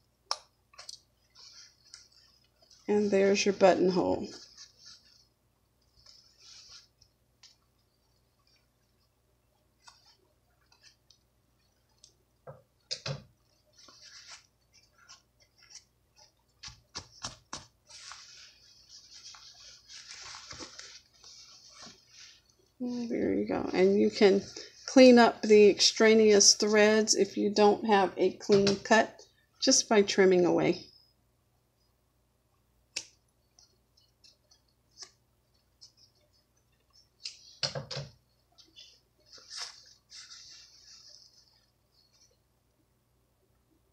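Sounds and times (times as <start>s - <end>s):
cotton fabric rustling: 0.6s - 29.0s, 33.5s - 42.7s
fabric rustling and clicking: 9.8s - 22.7s.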